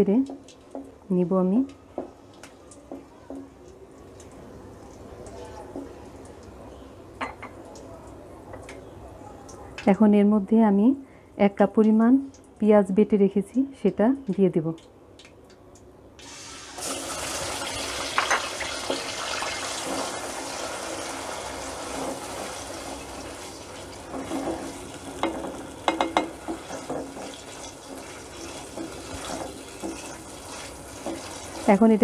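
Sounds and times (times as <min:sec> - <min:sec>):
onion paste sizzling in hot oil: 0:16.2 - 0:32.0
spoon scraping pan: 0:24.1 - 0:31.7.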